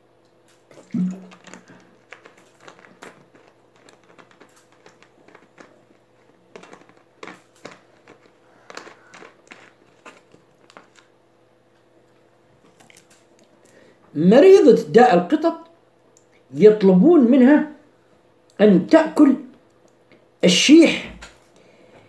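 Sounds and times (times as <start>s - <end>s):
plastic bottle crinkling: 0.6s - 11.2s, 12.6s - 13.8s.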